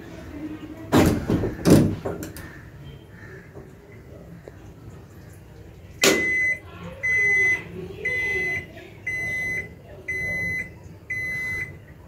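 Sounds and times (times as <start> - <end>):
washing machine beeping: 6.0 - 12.0.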